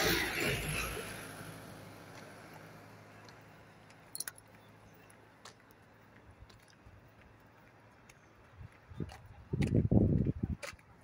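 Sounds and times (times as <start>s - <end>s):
car passing on road: 0.0s - 8.6s.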